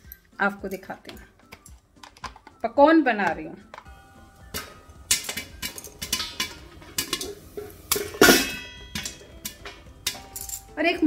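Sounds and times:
popcorn popping in a pot: 3.1 - 10.9
metal lid clanking: 4.5 - 10.7.

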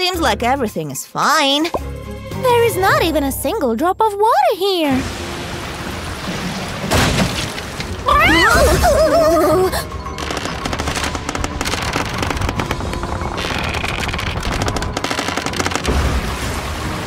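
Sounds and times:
background music: 0.0 - 17.0
walls cracking with crackling snaps: 10.1 - 17.0.

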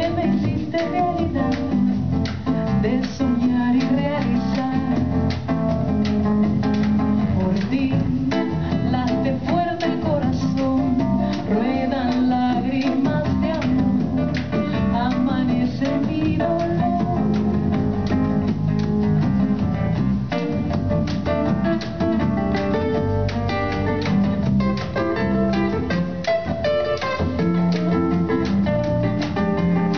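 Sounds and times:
woman singing: 0.0 - 18.8
acoustic guitar playing: 0.0 - 29.9
hand drums: 0.0 - 29.9
drum kit hits: 15.9 - 29.9.

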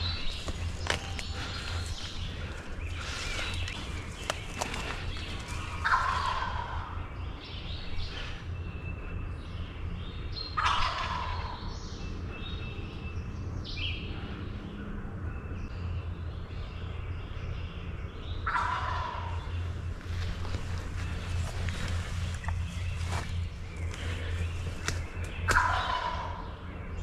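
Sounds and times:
songbirds chirping: 0.0 - 27.0
turkey gobbling: 5.5 - 6.8, 10.6 - 11.6, 18.5 - 19.3, 25.5 - 26.5.

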